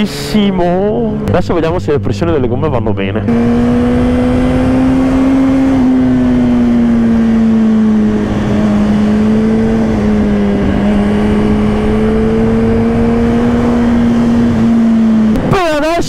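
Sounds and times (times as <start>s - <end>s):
motorcycle engine at high revs: 3.2s - 16.0s.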